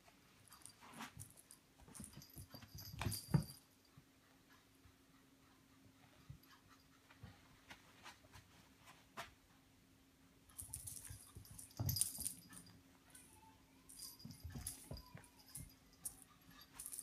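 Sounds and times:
cat toy rattling: 0:10.6 - 0:12.7.

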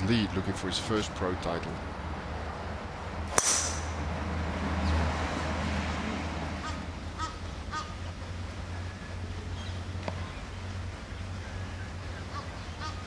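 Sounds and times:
golf club hitting ball: 0:03.3 - 0:04.1
bird calling: 0:06.6 - 0:13.0.

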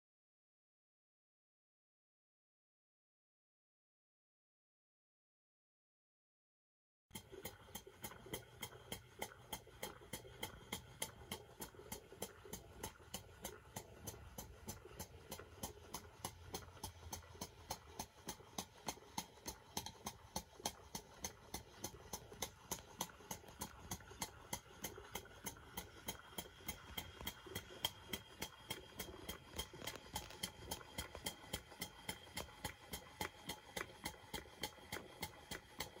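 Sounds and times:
steam engine exhaust puffs: 0:07.1 - 0:36.0
valve gear clicks: 0:07.1 - 0:36.0.

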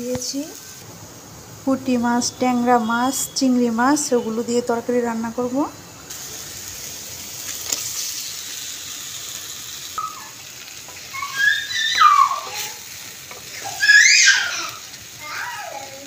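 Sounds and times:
food sizzling in hot oil: 0:00.0 - 0:16.0
child's voice squealing: 0:10.0 - 0:10.4, 0:11.0 - 0:12.9, 0:13.5 - 0:16.0.

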